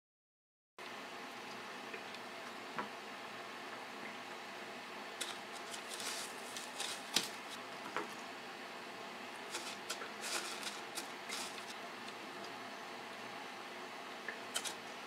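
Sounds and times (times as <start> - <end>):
hands breading scallops: 5.2 - 8.1, 9.4 - 12.6.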